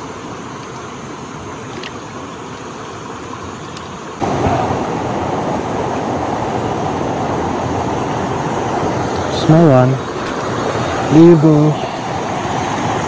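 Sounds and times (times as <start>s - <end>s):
stream rushing over stones: 0.0s - 13.0s.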